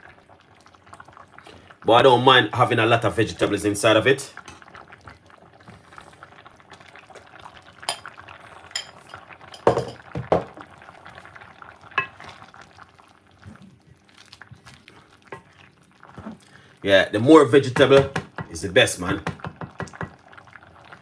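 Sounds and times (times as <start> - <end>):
broth bubbling in a pot: 0.0 - 21.0
utensils knocking on metal pot: 9.5 - 10.5.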